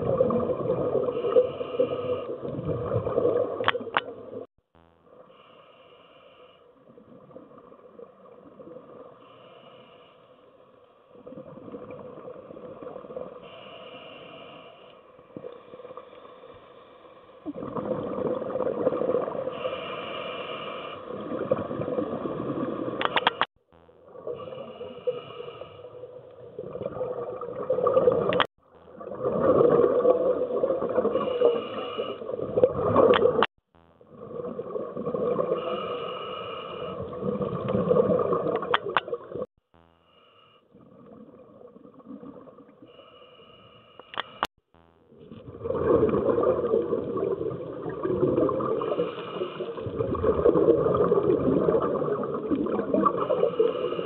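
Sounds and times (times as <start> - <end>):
diver breathing through regulator: 1.1 - 2.4, 9.2 - 10.6, 13.4 - 15.2, 19.5 - 21.3, 24.3 - 26.2, 31.0 - 32.4, 35.5 - 37.2, 42.8 - 44.5, 48.6 - 50.0, 53.1 - 54.0.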